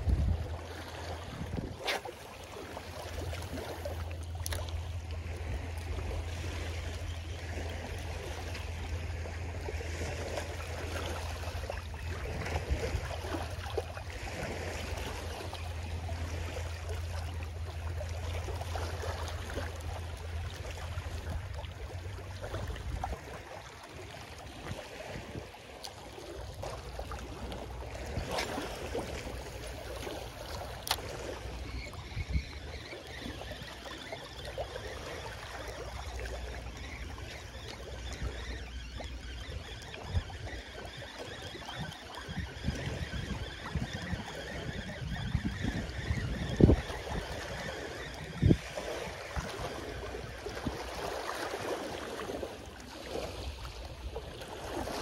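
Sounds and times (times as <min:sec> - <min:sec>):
wind rumbling on microphone: 0:00.0 - 0:19.5, 0:27.2 - 0:33.7, 0:40.0 - 0:51.3
small waves washing on beach: 0:00.0 - 0:55.0.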